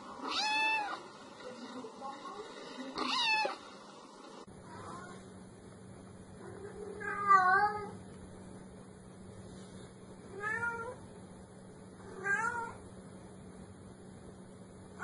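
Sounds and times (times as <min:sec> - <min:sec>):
cat meowing: 0:00.2 - 0:01.0, 0:03.0 - 0:03.6, 0:10.4 - 0:11.0, 0:12.1 - 0:12.8.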